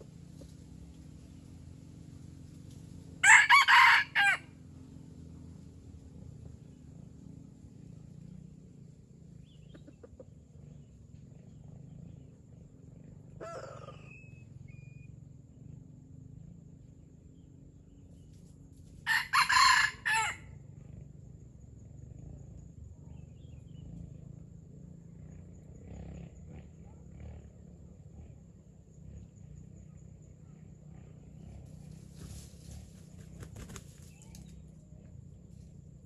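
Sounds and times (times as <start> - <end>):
rooster crowing: 3.2 - 4.5, 19.0 - 20.5.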